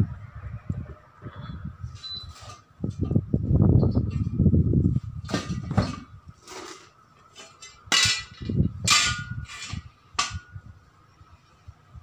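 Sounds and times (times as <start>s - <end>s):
metal clanks and knocks: 5.2s - 10.6s.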